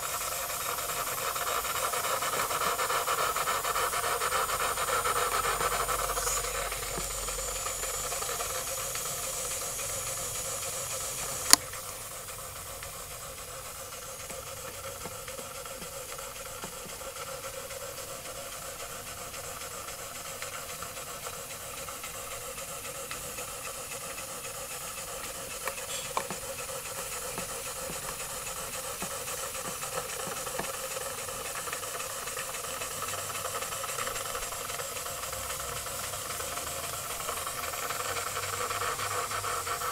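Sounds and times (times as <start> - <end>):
steam hissing: 0.0 - 39.9
sharp click: 11.4 - 11.7.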